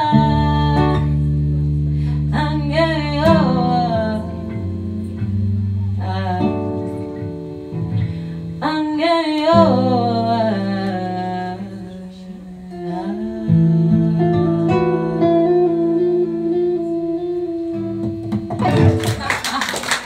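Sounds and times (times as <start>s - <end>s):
woman singing: 0.0s - 1.3s, 2.2s - 7.4s, 8.6s - 19.0s
acoustic guitar strummed: 12.8s - 19.3s.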